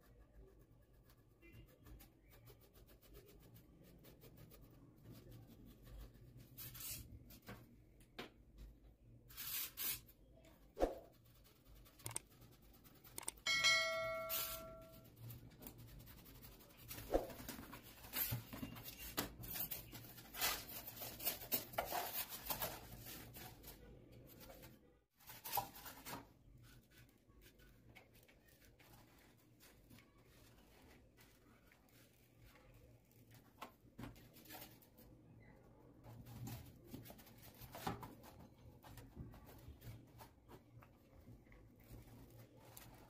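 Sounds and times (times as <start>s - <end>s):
bell-like ding: 13.5s - 15.0s.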